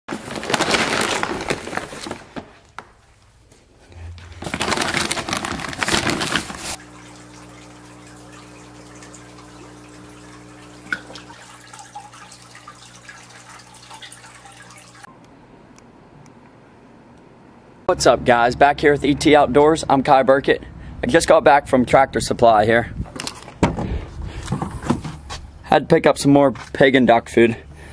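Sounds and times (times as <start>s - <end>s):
plastic bag rustling: 0.1s - 3.1s, 3.7s - 6.9s
electrical hum: 3.0s - 27.9s
faint dripping water: 6.8s - 15.1s.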